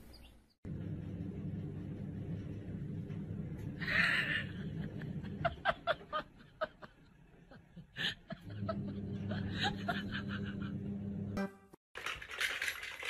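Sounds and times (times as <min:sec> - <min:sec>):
steady low hum: 0:00.7 - 0:07.1, 0:07.8 - 0:11.4
person snickering: 0:03.8 - 0:11.0.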